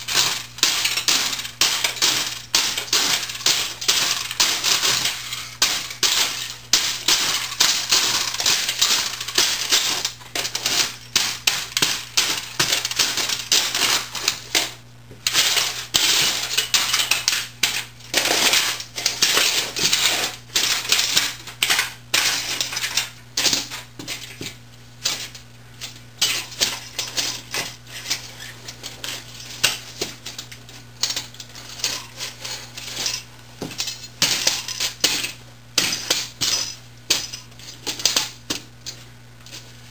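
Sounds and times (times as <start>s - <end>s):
boots stamping and grinding: 0.0s - 39.0s
metal parts clinking: 25.0s - 39.0s.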